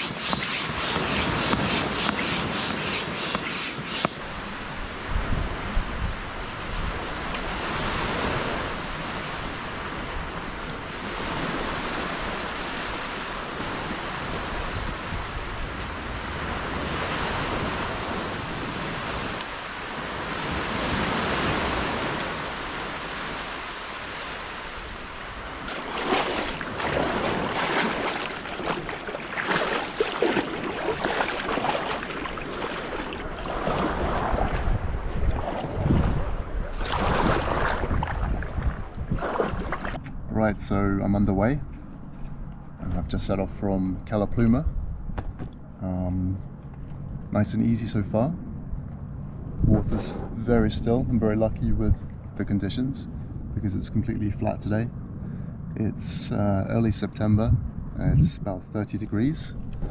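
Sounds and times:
small waves washing onto beach: 0.0 - 40.0
wind buffeting microphone: 4.1 - 42.1, 48.2 - 59.9
kayak splashing and knocks: 25.6 - 40.0.

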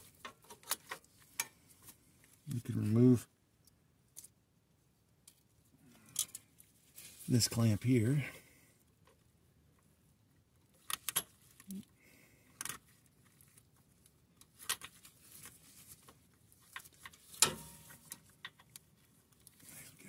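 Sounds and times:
faint metallic clicks and clinks: 6.0 - 6.6.

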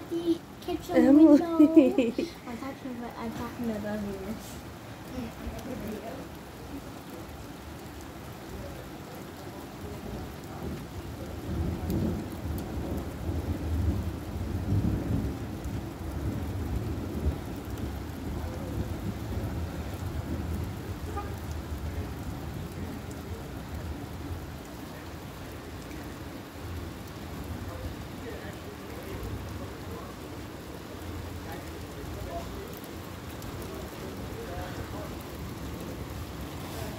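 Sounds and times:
heavy rain falling: 0.0 - 36.9
rolling thunder: 10.1 - 30.0.

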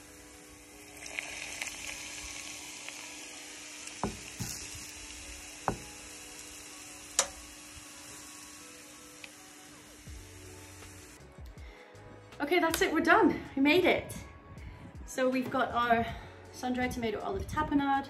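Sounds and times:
hot oil sizzling: 0.0 - 11.2.

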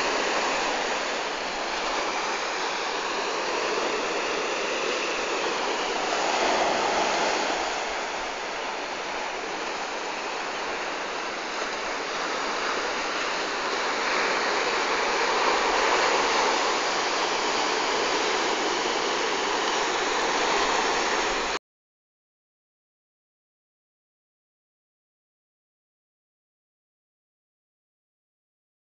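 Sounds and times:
waves breaking on sandy beach: 0.0 - 21.6.

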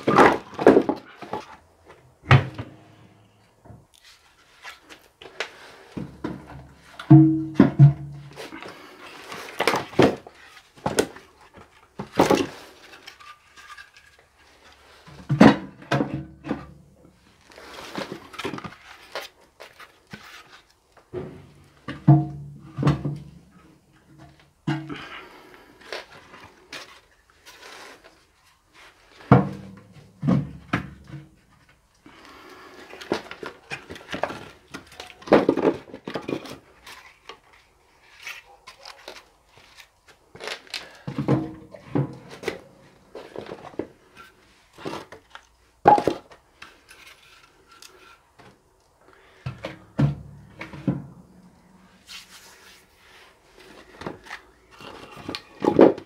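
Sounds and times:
wooden logs knocking: 7.1 - 8.2.

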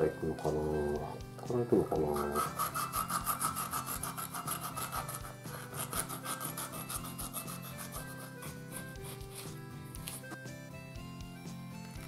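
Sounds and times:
knife sawing through fish: 2.0 - 10.3.

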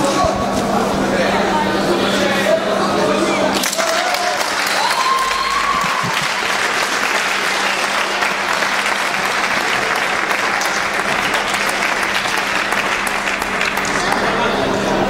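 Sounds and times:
crowd applauding: 3.5 - 15.0.

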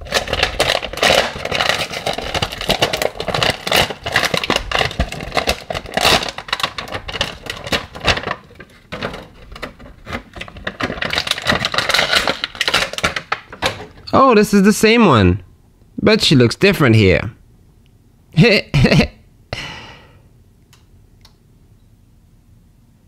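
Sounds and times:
packaging crinkling: 0.0 - 14.1.

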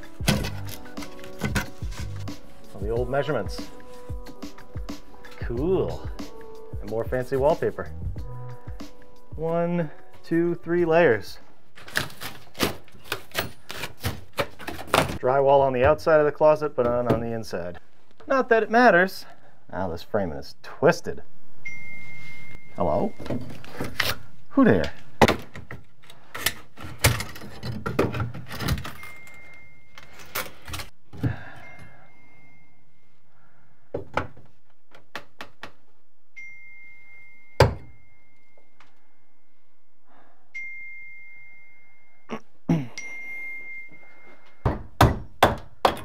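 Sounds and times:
hammer and pry bar knocking wood: 44.6 - 46.0.

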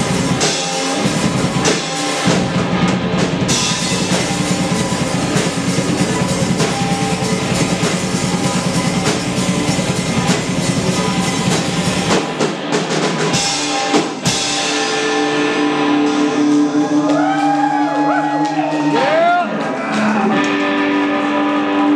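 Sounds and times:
held guitar notes ringing: 0.0 - 12.4
live rock band playing: 0.0 - 21.9.

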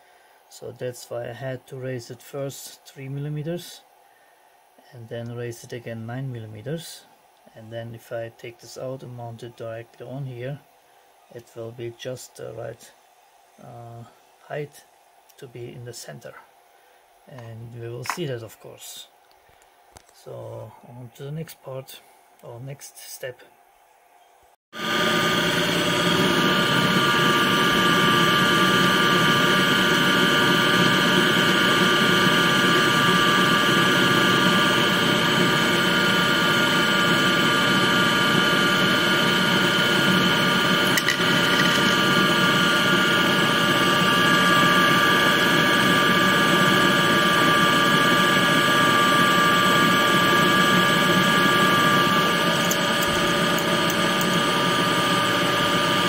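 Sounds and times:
mechanical hum: 0.0 - 56.0
lathe spindle whine: 24.8 - 56.0.

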